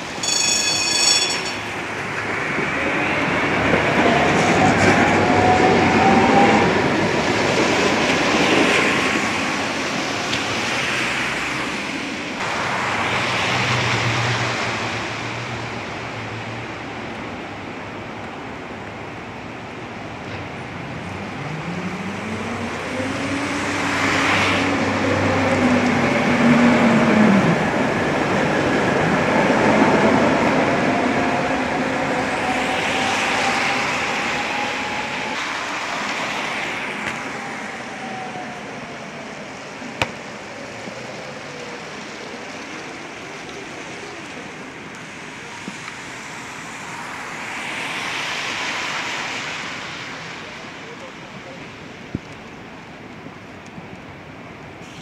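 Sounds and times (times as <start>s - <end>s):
tram motor whine: 0.0s - 9.2s
rain hissing: 32.1s - 52.0s.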